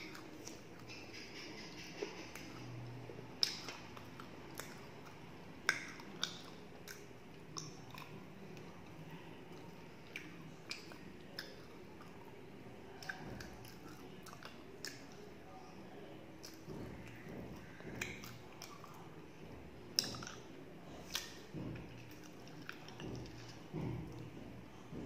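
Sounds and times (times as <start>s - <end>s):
person chewing: 0.0s - 1.0s, 1.6s - 15.3s, 16.4s - 24.9s
wet mouth clicks and lip smacks: 3.4s - 8.2s, 21.0s - 24.2s.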